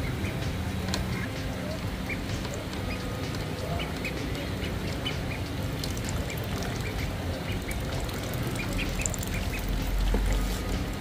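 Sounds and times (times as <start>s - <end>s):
ducklings peeping: 0.0s - 11.0s.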